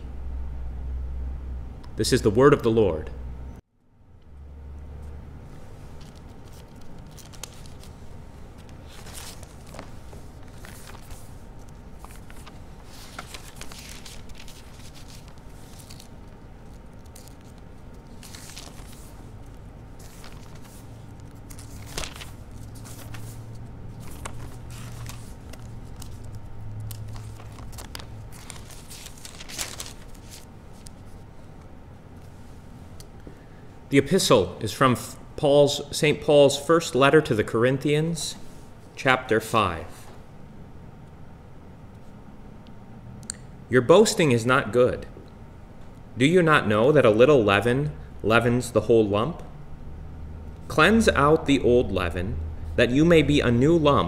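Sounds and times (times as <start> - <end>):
steady low hum: 0.0 - 54.0
paper rustling: 5.6 - 32.5.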